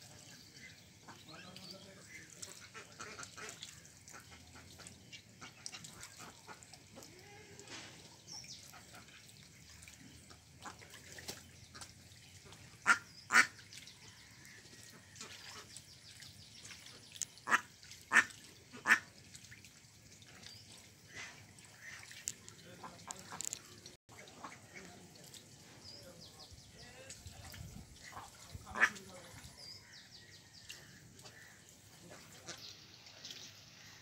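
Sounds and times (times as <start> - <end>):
ducks quacking loudly: 1.0 - 7.1, 12.5 - 13.6, 17.4 - 19.1, 21.1 - 25.0, 28.0 - 29.4.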